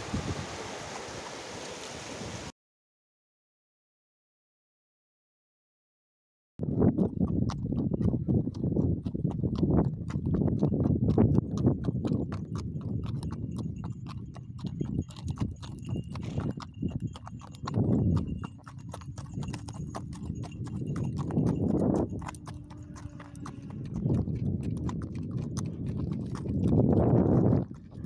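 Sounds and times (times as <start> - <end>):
horse hooves clopping on dirt: 6.6 - 28.0.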